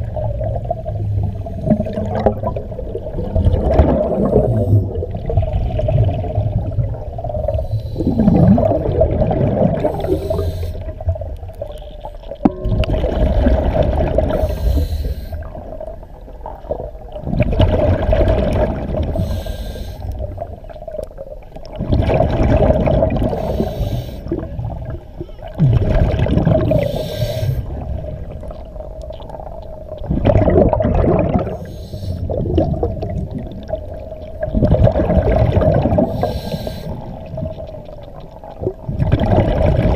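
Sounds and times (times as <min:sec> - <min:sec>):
rush of exhaled bubbles: 0:00.0 - 0:11.7, 0:12.4 - 0:19.6, 0:20.2 - 0:39.9
diver breathing through regulator: 0:07.5 - 0:08.8, 0:09.8 - 0:11.1, 0:14.3 - 0:15.7, 0:19.1 - 0:20.3, 0:23.2 - 0:24.5, 0:26.7 - 0:28.0, 0:31.4 - 0:32.4, 0:36.0 - 0:37.3.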